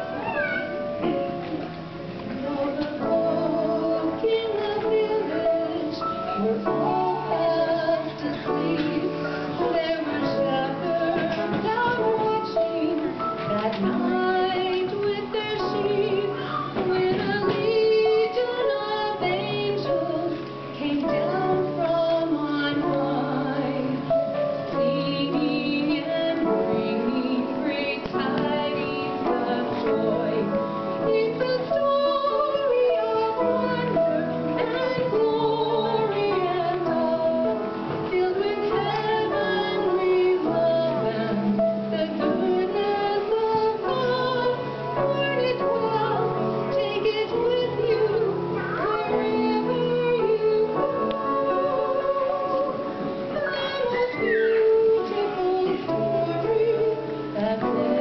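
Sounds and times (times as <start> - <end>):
instrumental accompaniment: 0.0 - 58.0
woman singing: 2.1 - 58.0.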